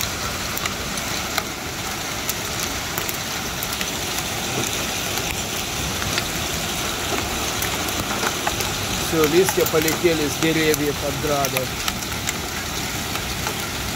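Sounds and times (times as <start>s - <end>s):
hail and rain pouring: 0.0s - 13.9s
hailstones clicking: 0.0s - 13.9s.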